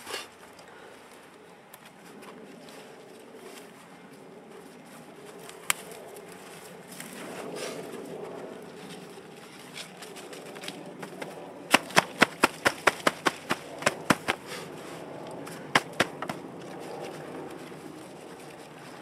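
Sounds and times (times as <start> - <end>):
gloved hands patting soil: 10.8 - 19.0.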